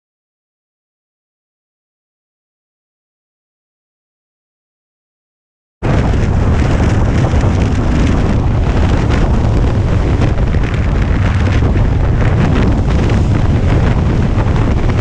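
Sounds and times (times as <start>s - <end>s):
wind buffeting microphone: 5.8s - 15.0s.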